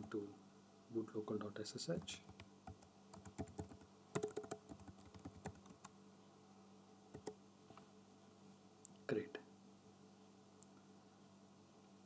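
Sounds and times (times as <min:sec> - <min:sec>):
keyboard typing: 0:02.0 - 0:05.9, 0:07.1 - 0:07.4.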